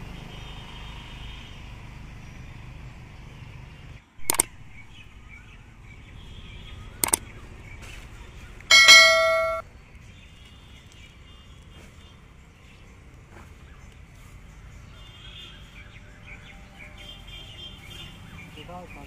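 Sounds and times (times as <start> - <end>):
faint outdoor background: 0.0 - 19.0
sharp click: 4.2 - 4.6, 7.0 - 7.2
bright bell-like ding: 8.7 - 9.6.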